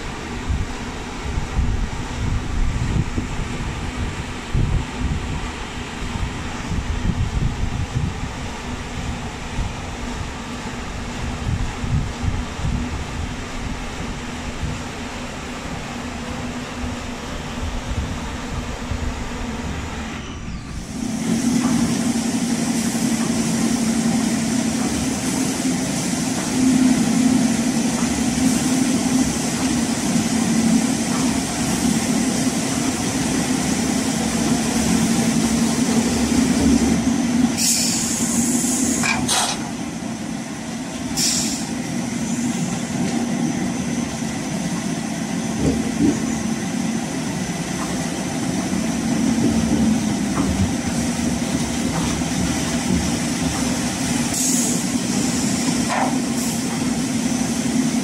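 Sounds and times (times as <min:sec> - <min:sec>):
steady machine hum: 0:00.0 - 0:37.6
short hissing bursts: 0:37.6 - 0:39.1, 0:41.2 - 0:41.8.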